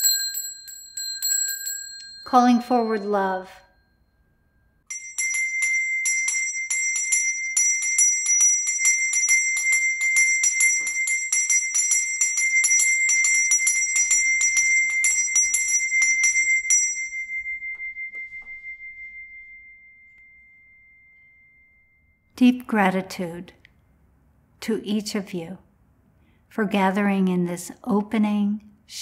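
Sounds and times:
small high-pitched bell ringing: 0.0 - 22.3.

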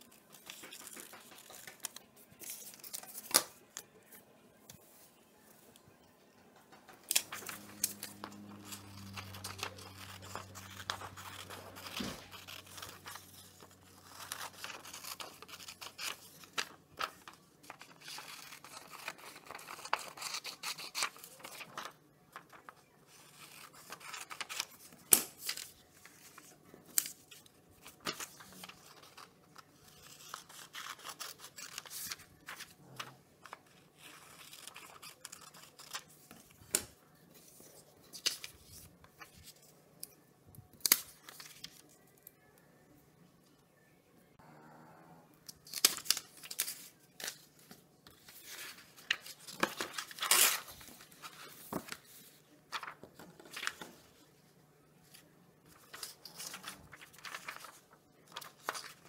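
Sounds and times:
paper rustling: 0.0 - 5.8, 6.6 - 39.8, 45.7 - 54.3, 55.0 - 59.0
scissors snipping paper: 0.3 - 3.5, 7.0 - 21.9, 33.4 - 36.1.

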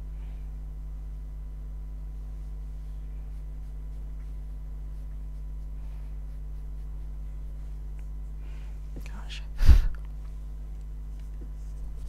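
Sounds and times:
low electrical mains hum: 0.0 - 12.0.

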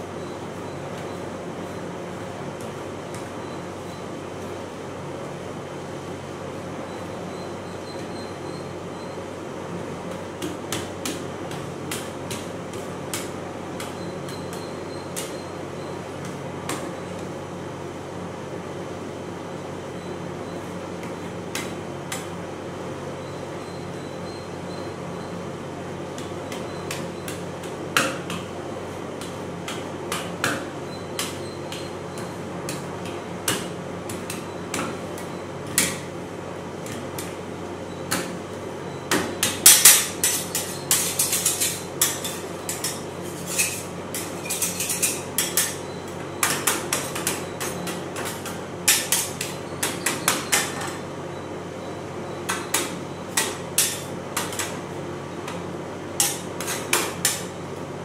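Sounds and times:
metal spatulas tapping and scraping: 39.4 - 45.8, 46.4 - 51.0, 52.5 - 54.8, 56.2 - 57.5.

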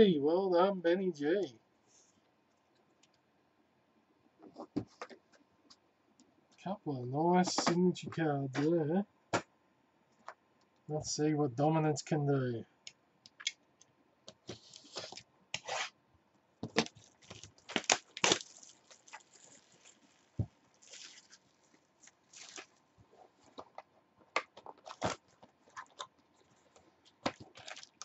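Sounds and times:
wrapping tearing and rustling: 16.7 - 23.8, 24.6 - 28.0.

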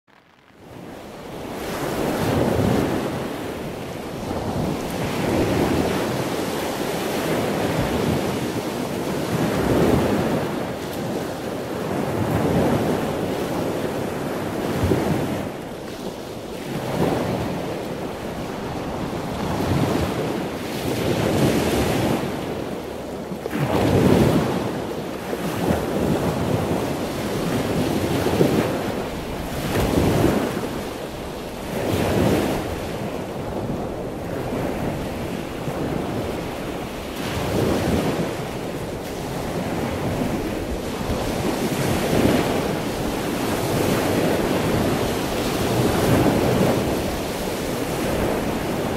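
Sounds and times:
ocean surf breaking: 0.6 - 48.9
wind buffeting microphone: 0.6 - 48.9.

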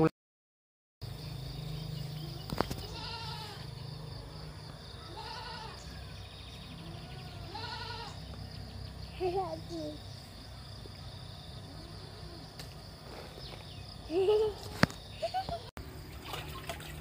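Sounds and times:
goat bleating: 2.9 - 3.7, 5.1 - 5.8, 6.8 - 8.2.

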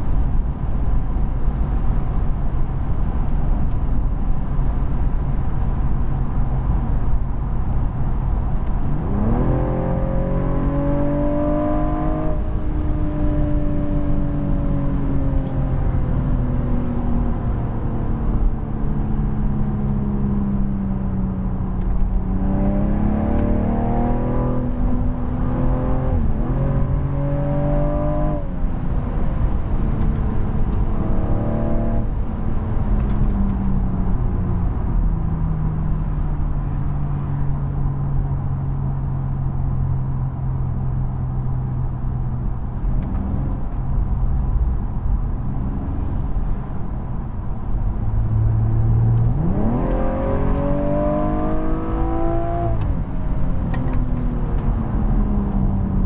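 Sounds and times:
road and tyre noise: 0.0 - 56.0
car engine accelerating: 8.1 - 56.0.

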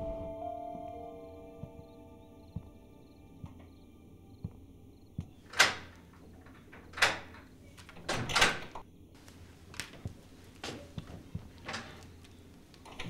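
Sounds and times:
door handle and latch rattling: 5.4 - 8.8.

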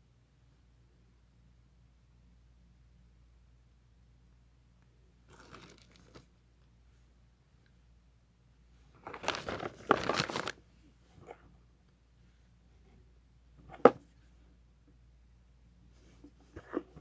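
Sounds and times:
packaging rustling and clicking: 9.0 - 10.6.

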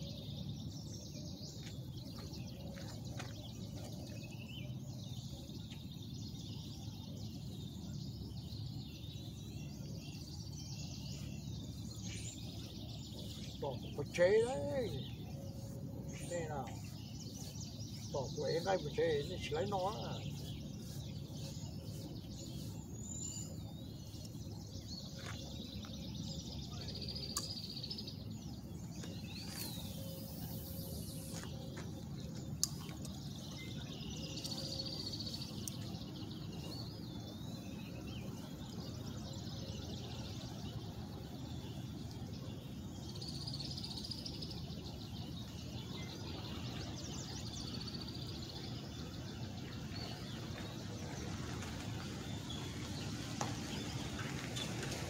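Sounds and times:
small birds chirping: 0.0 - 55.0
low outdoor rumble: 44.6 - 55.0.

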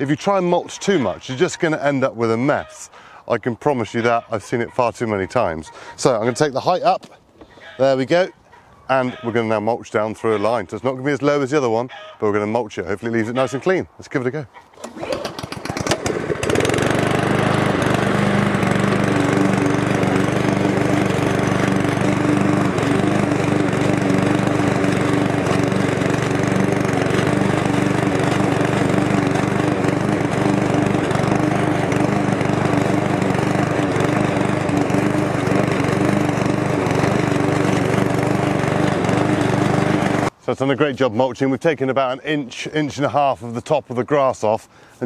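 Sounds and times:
lawn mower cutting grass: 14.8 - 40.4.

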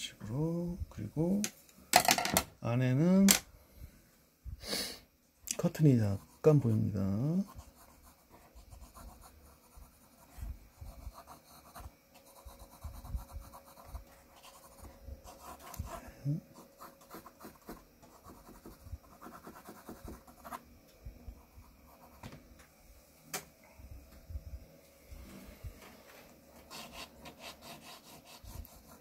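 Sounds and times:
faint pencil scratching on paper: 5.6 - 20.6, 21.4 - 22.2, 26.6 - 29.0.

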